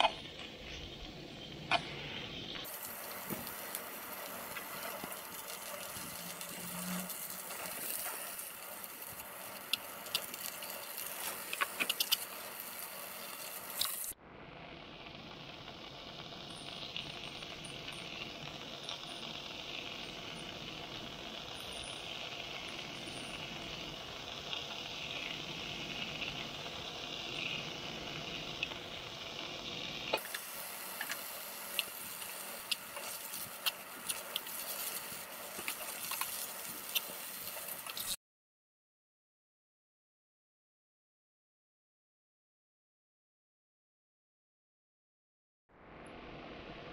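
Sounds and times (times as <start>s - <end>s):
greens sizzling in a frying pan: 0.1s - 14.2s, 15.2s - 38.2s.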